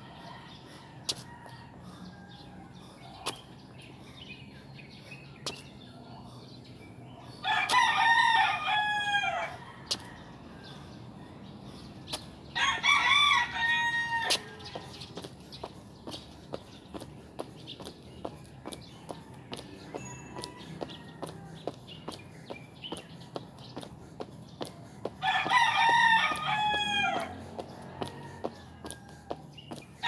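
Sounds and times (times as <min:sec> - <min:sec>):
rooster crowing: 0:07.4 - 0:10.3, 0:12.6 - 0:14.8, 0:19.2 - 0:21.6, 0:25.2 - 0:29.5.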